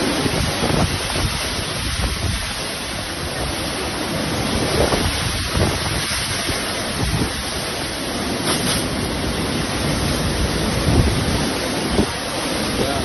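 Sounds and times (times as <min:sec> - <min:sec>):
heavy rain hissing: 0:00.0 - 0:13.0
wind gusts buffeting microphone: 0:00.0 - 0:13.0.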